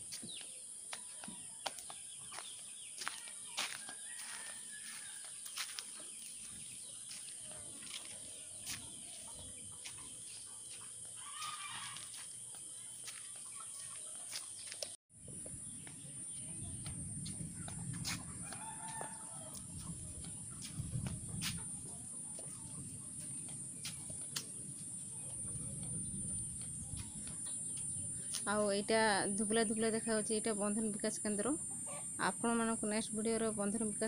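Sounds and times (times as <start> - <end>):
chickens clucking: 1.0 - 14.9
rooster crowing: 3.6 - 5.2, 11.2 - 12.2, 18.4 - 19.7.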